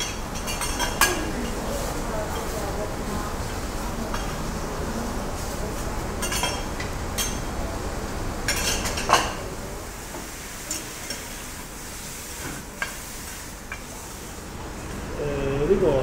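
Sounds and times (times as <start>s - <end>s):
meat sizzling on griddle: 9.9s - 14.5s.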